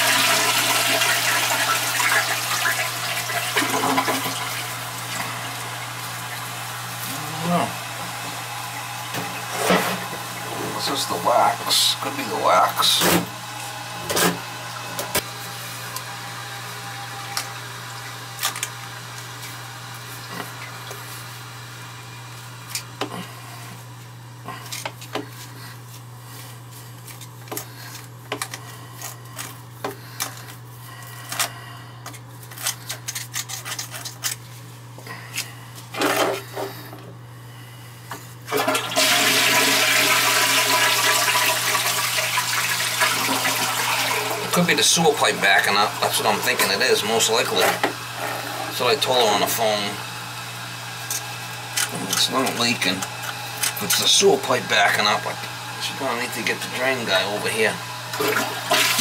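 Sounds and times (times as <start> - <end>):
toilet flushing: 0.0 - 15.3, 16.0 - 22.2, 38.4 - 59.0.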